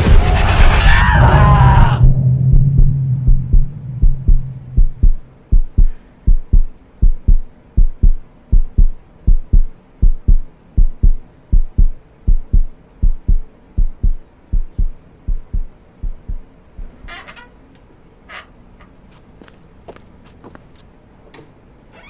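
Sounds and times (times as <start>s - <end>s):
low hum: 0.0s - 17.4s
heartbeat double thumps: 1.7s - 17.0s.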